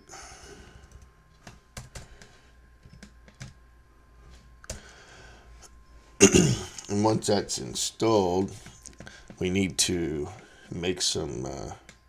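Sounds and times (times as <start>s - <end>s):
keyboard keys clicking: 2.8s - 3.6s.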